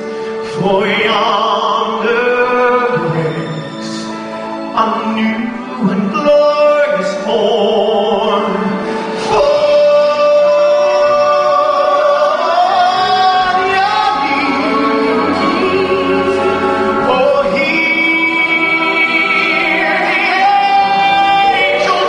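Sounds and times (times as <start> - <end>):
live orchestral christmas music: 0.0 - 22.0
man singing lead vocal: 0.0 - 22.0
women singing backing vocals: 17.9 - 22.0.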